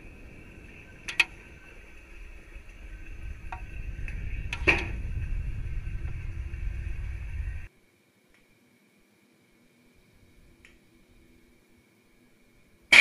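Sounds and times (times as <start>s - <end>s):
low rumble: 0.0s - 7.7s
steady high whine: 0.0s - 13.0s.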